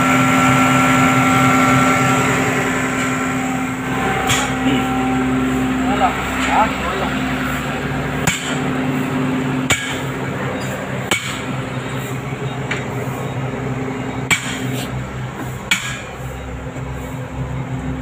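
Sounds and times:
excavator diesel engine running: 0.0 - 18.0
sharp hammer blows: 4.1 - 6.6, 8.2 - 8.7, 9.7 - 10.1.

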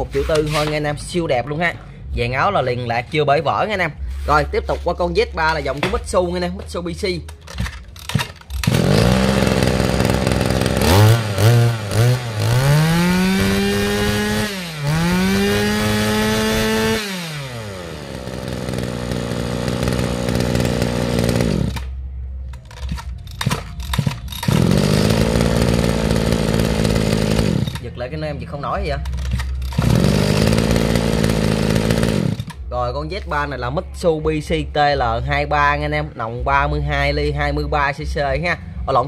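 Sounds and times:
pull-cord tugs: 7.3 - 21.9, 22.5 - 27.9, 28.9 - 32.6
brush-cutter engine revving and idling: 8.0 - 21.9, 22.6 - 27.9, 29.1 - 32.6.

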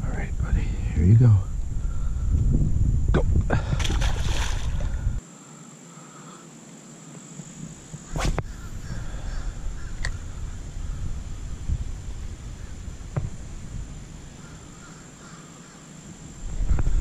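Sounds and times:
wind rumble on microphone: 0.0 - 5.2, 7.8 - 15.0, 16.3 - 17.0
fish splashing into water: 3.8 - 4.9.

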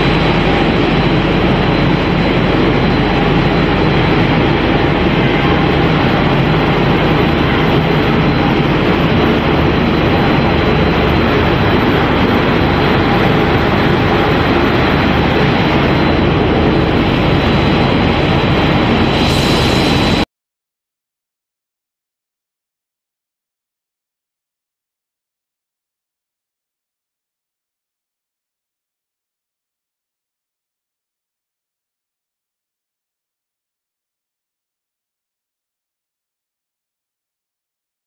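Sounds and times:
high machine whine: 0.0 - 20.3
loud machinery running: 0.0 - 20.3.

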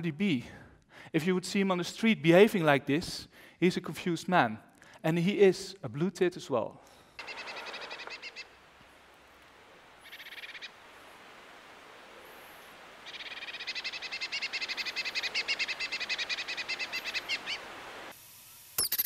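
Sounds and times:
bird singing trills: 7.2 - 8.6, 10.0 - 10.8, 13.0 - 17.7.

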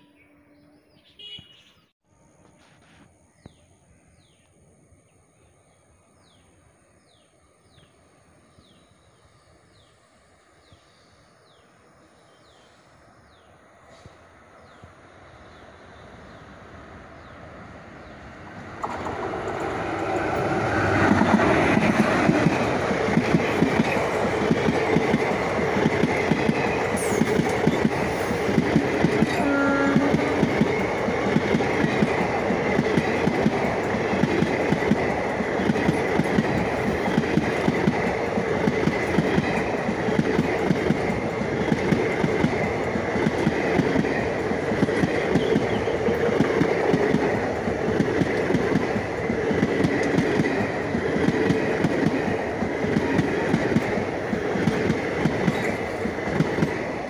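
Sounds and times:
train coaches rumbling past: 5.4 - 57.0
wheels clacking over rails: 18.8 - 57.0.

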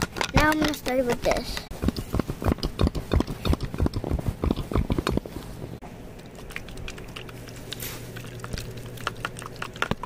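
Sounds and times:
crunchy clicks and taps: 6.2 - 10.0.

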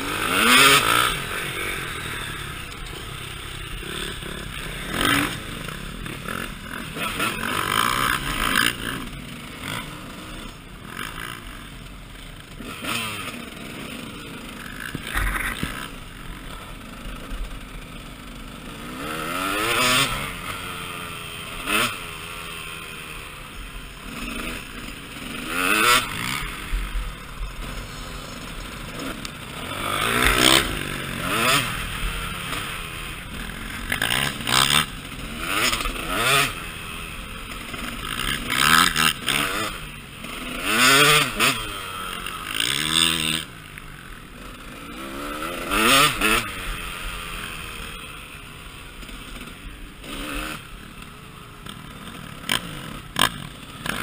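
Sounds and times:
rough rattling noise: 0.0 - 19.4, 23.4 - 40.6
dirt bike engine revving: 0.0 - 54.0.

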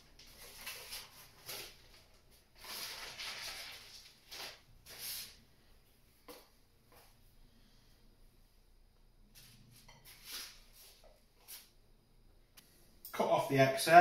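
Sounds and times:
baking paper rustling: 0.0 - 5.5, 9.4 - 11.7.

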